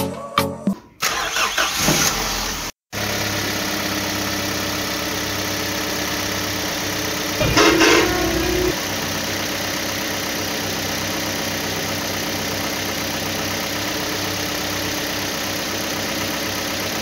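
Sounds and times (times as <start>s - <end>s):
engine starting: 1.0s - 2.7s, 7.4s - 8.8s.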